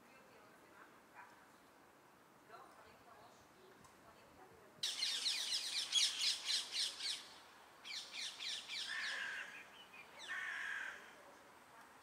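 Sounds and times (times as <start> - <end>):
birds squawking and chattering: 4.8 - 7.3, 7.9 - 11.0.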